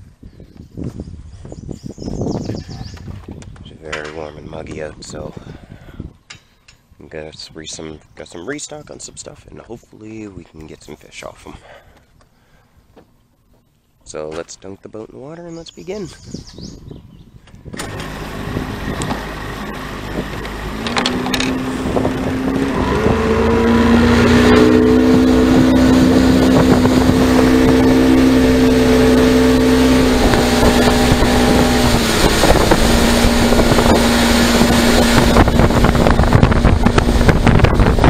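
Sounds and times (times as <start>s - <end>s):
wind buffeting microphone: 0.0s - 6.4s, 16.0s - 38.0s
boat motor running: 17.8s - 38.0s.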